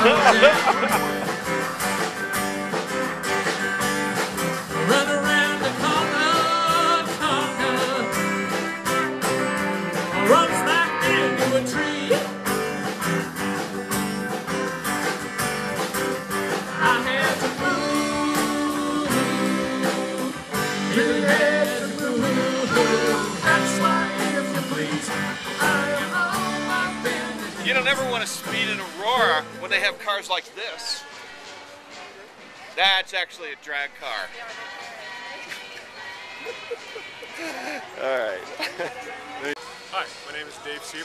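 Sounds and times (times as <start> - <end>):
guitar-led song with singing: 0.0 - 30.0.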